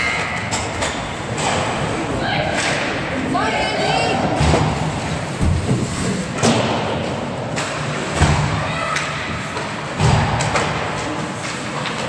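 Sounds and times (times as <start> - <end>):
hockey sticks and puck clacking: 0.0 - 3.3, 4.1 - 12.0
heavy thuds against rink boards: 4.2 - 9.2, 9.9 - 11.2.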